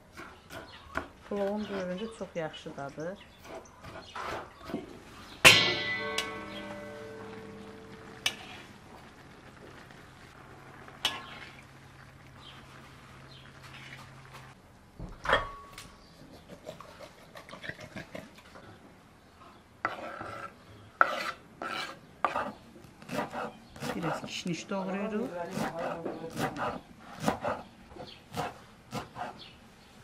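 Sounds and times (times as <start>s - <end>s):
loud metal clank: 5.4s - 8.5s
metal spoon stirring in pan: 5.4s - 9.9s, 10.8s - 14.6s, 19.8s - 22.6s
scraping on wooden cutting board: 19.8s - 24.4s.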